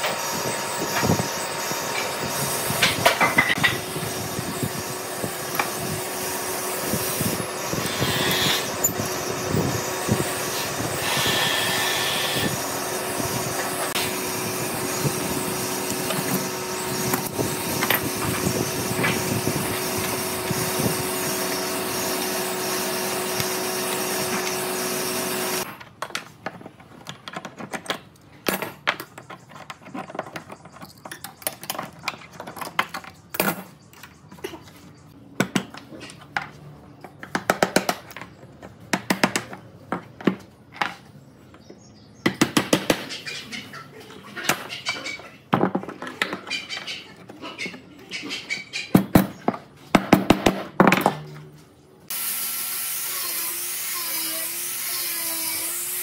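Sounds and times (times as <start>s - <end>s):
power tool whirring hum: 0.0s - 25.7s, 52.1s - 56.0s.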